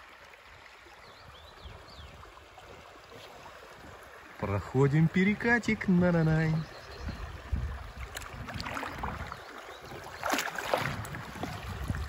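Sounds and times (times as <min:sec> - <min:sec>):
river water rushing: 0:01.8 - 0:12.0
loud water splashes: 0:07.5 - 0:12.0.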